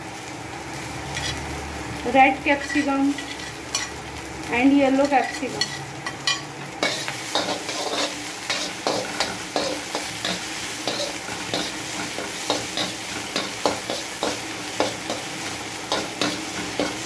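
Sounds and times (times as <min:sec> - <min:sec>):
vegetables sizzling in oil: 0:00.0 - 0:17.0
metal spatula scraping a pan: 0:01.1 - 0:01.4, 0:02.6 - 0:04.0, 0:05.1 - 0:17.0.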